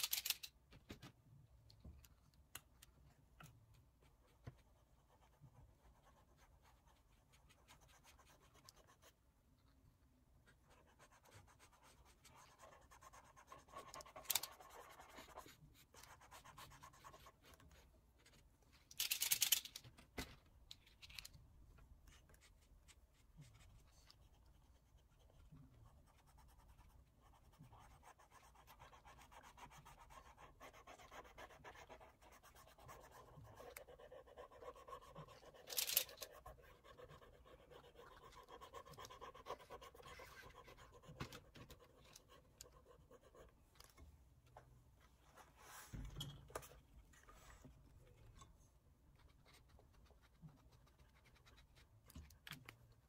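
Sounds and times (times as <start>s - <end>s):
oil pastel scratching on paper: 10.5s - 18.4s, 22.1s - 43.6s, 49.1s - 52.2s.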